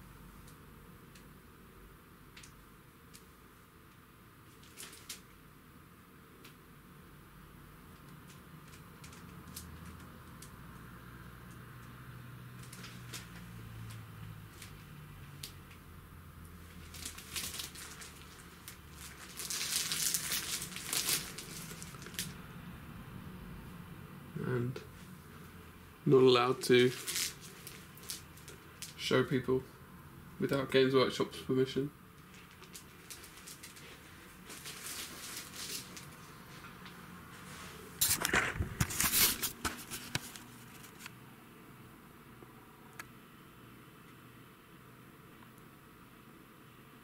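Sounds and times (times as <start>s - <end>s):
packaging rustling and crinkling: 4.5s - 5.3s, 12.6s - 15.5s, 16.6s - 22.4s, 26.5s - 29.0s, 32.2s - 41.1s.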